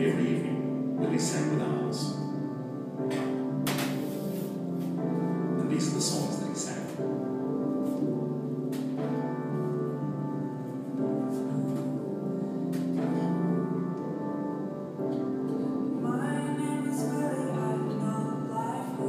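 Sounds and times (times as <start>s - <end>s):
electronic keyboard chords: 0.0s - 19.0s
person singing: 16.0s - 19.0s.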